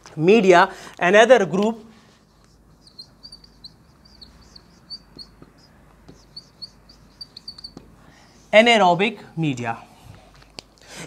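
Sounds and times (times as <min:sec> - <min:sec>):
marker squeaking on whiteboard: 0:02.1 - 0:08.6
faint taps: 0:05.1 - 0:06.4, 0:07.4 - 0:08.0.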